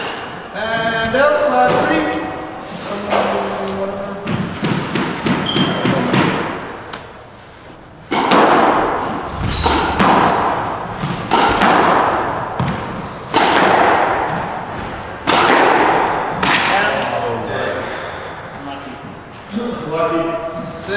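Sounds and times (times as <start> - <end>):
squash ball hitting rackets and walls: 0.0 - 7.3, 8.0 - 18.5
sneaker squeaks on wooden floor: 4.2 - 6.2, 9.3 - 11.6, 12.6 - 15.1.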